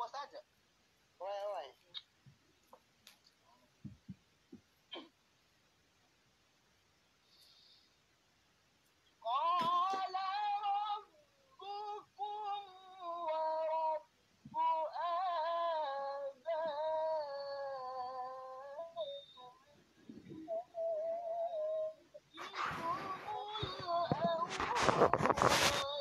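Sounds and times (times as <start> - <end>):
high voice singing: 9.3 - 26.0.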